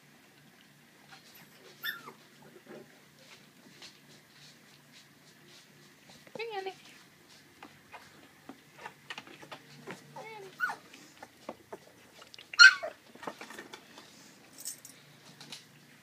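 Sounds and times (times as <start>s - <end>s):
puppies eating: 0.0s - 16.0s
puppy yelping: 1.1s - 2.2s, 10.2s - 10.9s, 12.4s - 13.0s
puppy whining: 1.1s - 2.6s, 8.7s - 13.4s.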